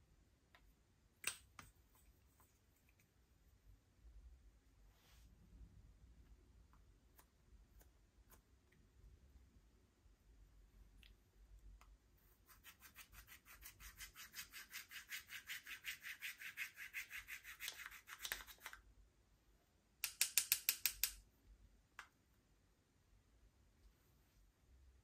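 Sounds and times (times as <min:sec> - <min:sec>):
scratchy scraping of powder: 0:12.2 - 0:18.6.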